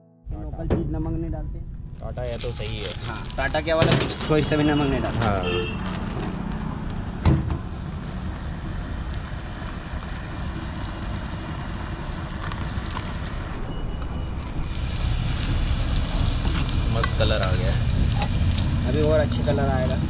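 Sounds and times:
low background rumble: 0:00.2 - 0:04.3.

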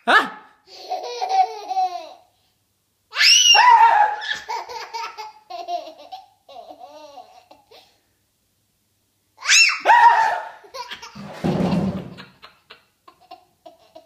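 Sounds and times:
toddler giggling: 0:00.7 - 0:02.3, 0:04.3 - 0:07.9, 0:10.6 - 0:14.0
high-pitched scream: 0:03.1 - 0:04.4, 0:09.4 - 0:10.6.

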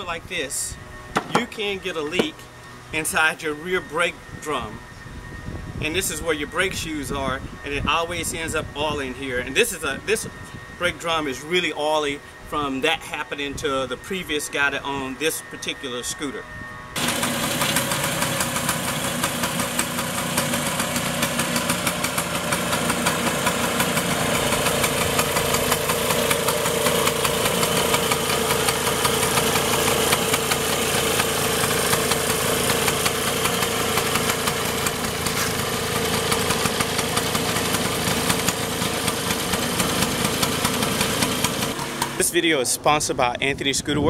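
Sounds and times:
scooter engine idling: 0:17.0 - 0:42.2.

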